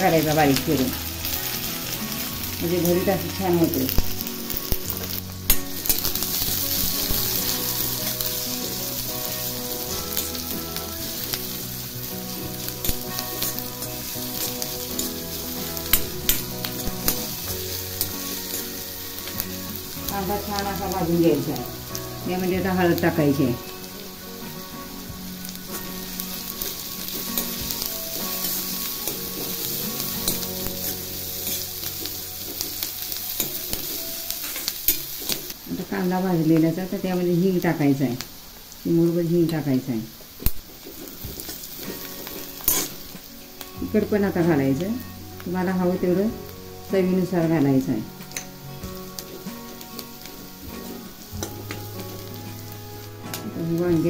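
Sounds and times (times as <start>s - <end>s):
onions sizzling in hot oil: 0.0s - 54.0s
steel ladle scraping pan: 0.5s - 21.0s.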